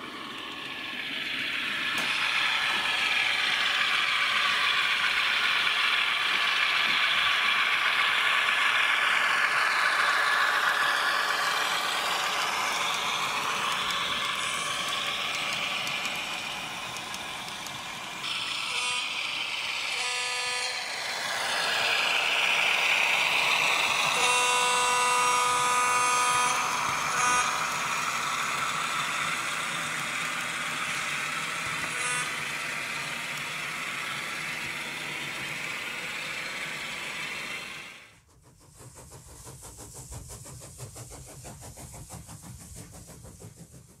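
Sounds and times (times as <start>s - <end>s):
model locomotive air horn: 18.2s - 22.3s, 23.4s - 29.7s, 31.6s - 34.5s.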